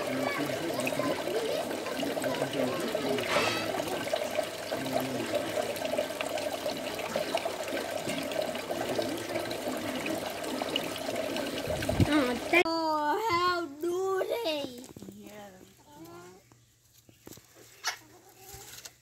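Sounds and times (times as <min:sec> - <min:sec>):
water stream splashing into pot: 0:00.0 - 0:12.6.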